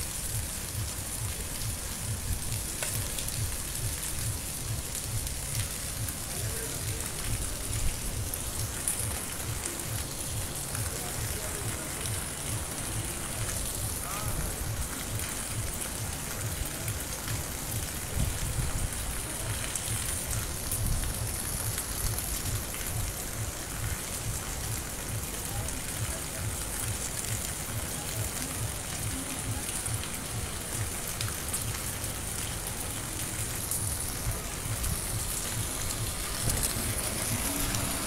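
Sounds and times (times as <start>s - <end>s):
rain on street and rooftops: 0.0s - 38.0s.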